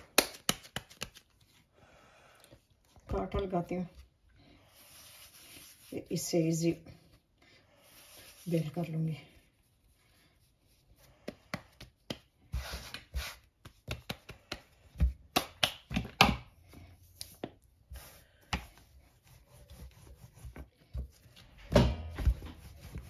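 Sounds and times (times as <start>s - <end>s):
hands patting dough: 0.0s - 1.5s, 11.0s - 23.0s
rolling pin rolling dough: 17.3s - 23.0s.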